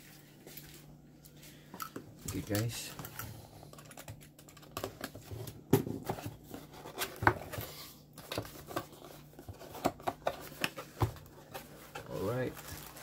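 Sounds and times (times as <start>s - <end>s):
cardboard and paper rustles: 3.9s - 13.0s.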